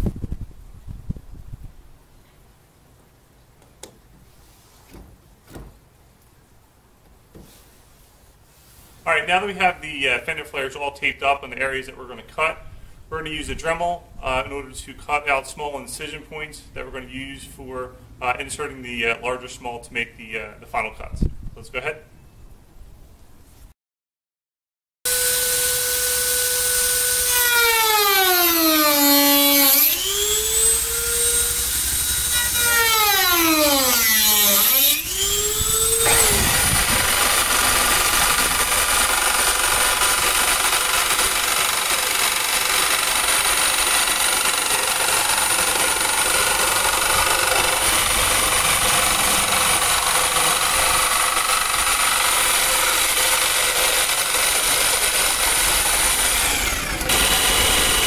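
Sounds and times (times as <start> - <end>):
rotary tool cutting plastic: 25.2 - 58.0.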